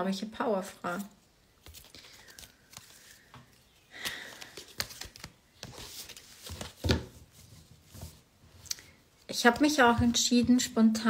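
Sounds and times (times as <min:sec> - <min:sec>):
soft breath: 0:01.8 - 0:04.8.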